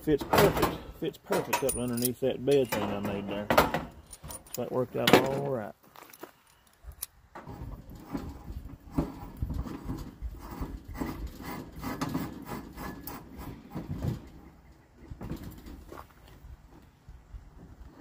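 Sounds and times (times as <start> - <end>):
gear knocking and scraping on wood: 7.4 - 14.5.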